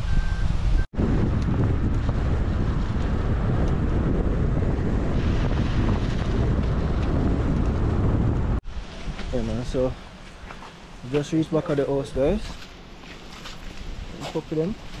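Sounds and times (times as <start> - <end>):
wind rushing over microphone: 0.0 - 11.1
car road noise: 0.0 - 14.1.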